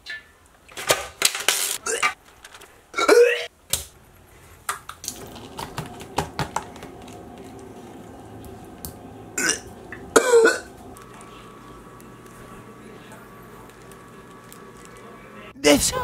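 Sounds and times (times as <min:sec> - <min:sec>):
faint steady hum: 0:04.0 - 0:16.0.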